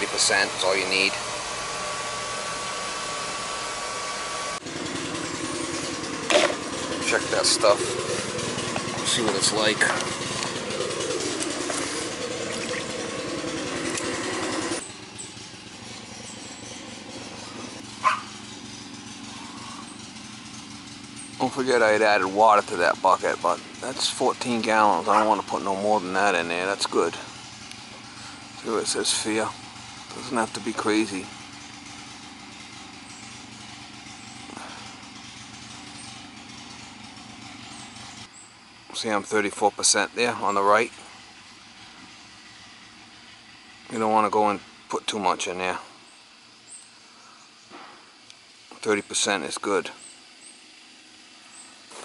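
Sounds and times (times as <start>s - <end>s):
mechanical hum: 0.0s - 21.4s
engine idling: 0.0s - 52.0s.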